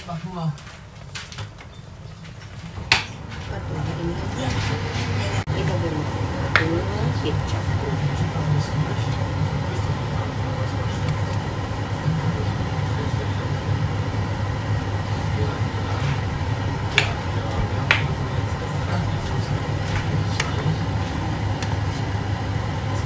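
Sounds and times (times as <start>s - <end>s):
low kitchen hum: 0.0s - 23.0s.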